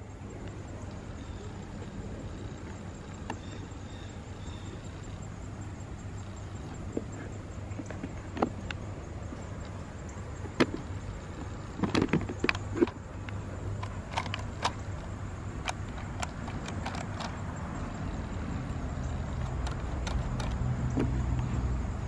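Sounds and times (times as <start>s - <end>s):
hand handling plastic toy clicks: 11.8s - 14.8s, 15.6s - 17.4s, 19.4s - 20.6s.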